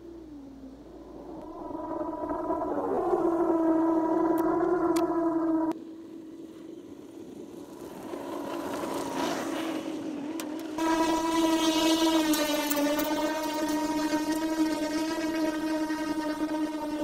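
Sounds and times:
electric motor whining: 10.4 - 17.0.

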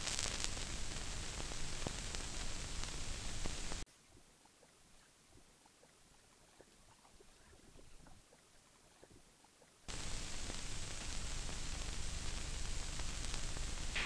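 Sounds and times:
film soundtrack hiss: 0.0 - 14.0
film clicks and crackles: 9.9 - 14.0.

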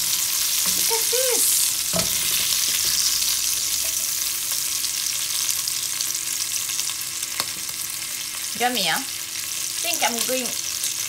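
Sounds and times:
meat sizzling in a pot: 0.0 - 11.0.

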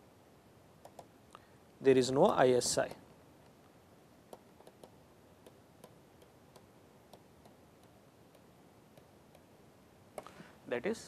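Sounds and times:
low hiss: 0.0 - 11.0
stylus tapping on tablet: 0.8 - 1.1, 4.3 - 9.5.

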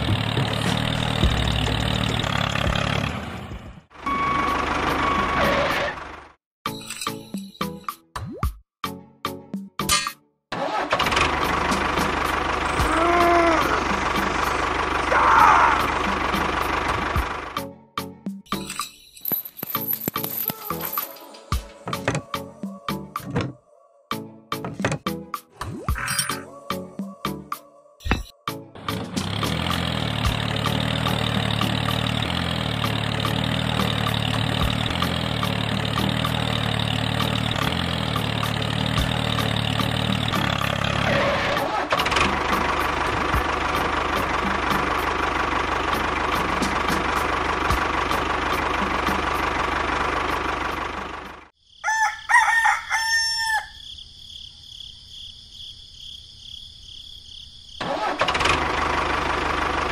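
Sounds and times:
tractor engine running: 0.0 - 6.4, 10.5 - 17.7, 19.2 - 22.4, 28.7 - 51.6, 57.8 - 59.9
rooster crowing: 51.7 - 54.0.

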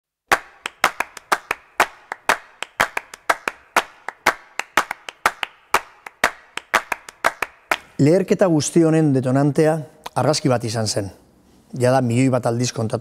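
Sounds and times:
rhythmic hand clapping: 0.3 - 8.0.

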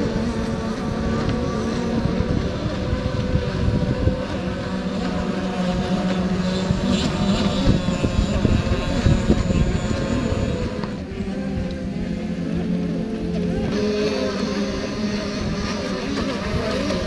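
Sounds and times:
model boat motors buzzing: 0.0 - 17.0.

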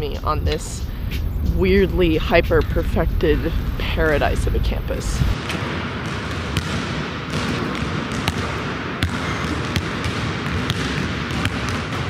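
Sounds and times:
basketball bouncing on hardwood floor: 6.0 - 12.0.

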